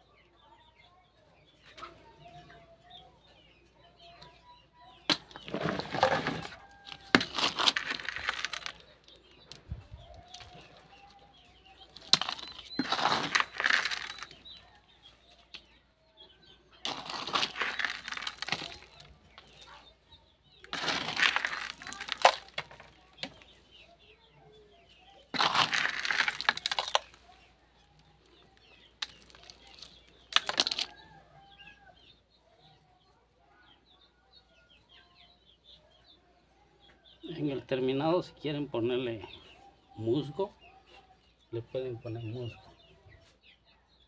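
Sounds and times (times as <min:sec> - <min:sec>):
gravelly soil scraping and crunching: 0:05.1 - 0:15.7, 0:16.7 - 0:23.8, 0:25.2 - 0:31.1.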